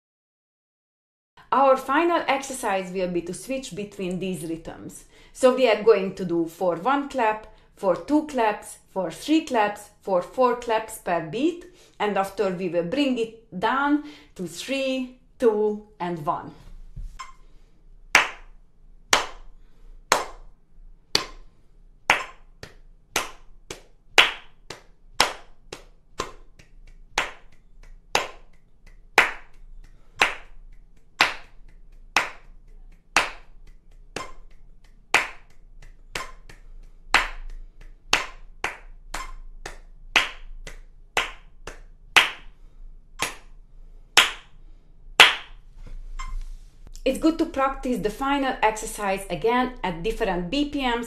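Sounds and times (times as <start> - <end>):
hand claps: 18.1 - 18.5, 19.1 - 19.5, 20.1 - 20.5, 21.1 - 21.5, 22.1 - 42.6, 43.2 - 43.5, 44.2 - 44.5, 45.2 - 45.6.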